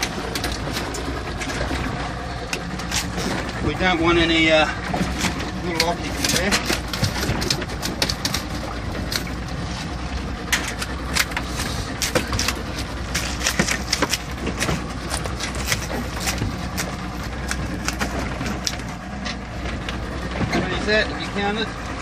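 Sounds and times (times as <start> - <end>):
steady low rumble: 0.0 - 22.0
lobster shells clicking and scraping: 2.5 - 3.4, 5.0 - 9.4, 10.5 - 20.0.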